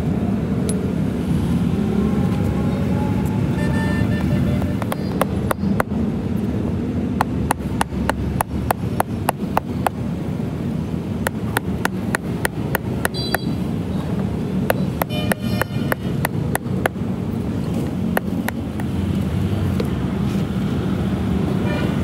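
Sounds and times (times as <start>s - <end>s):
hand hammer tapping on tyre: 4.1s - 6.0s, 7.1s - 10.1s, 11.2s - 13.6s, 14.6s - 17.0s, 18.1s - 19.0s.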